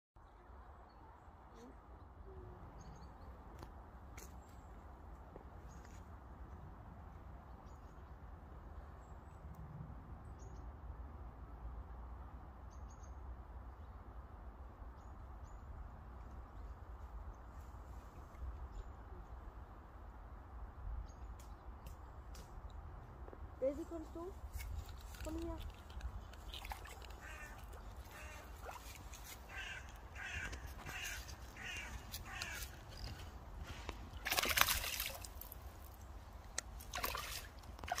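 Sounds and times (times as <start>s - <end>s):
small birds chirping: 23.7s - 34.2s
crow cawing: 27.1s - 33.2s.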